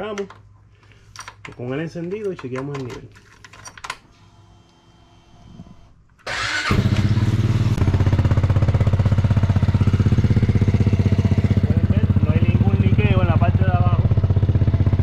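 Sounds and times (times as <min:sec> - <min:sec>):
engine cranking and idling: 0:06.2 - 0:15.0.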